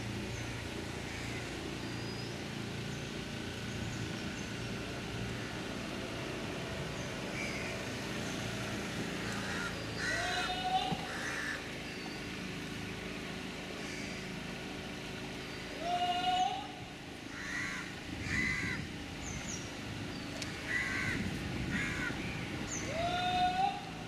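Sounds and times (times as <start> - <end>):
boat engine hum: 0.0 - 24.0
crows cawing: 1.0 - 1.5, 7.3 - 7.8, 9.2 - 11.7, 13.8 - 14.3, 17.3 - 18.9, 20.5 - 22.2.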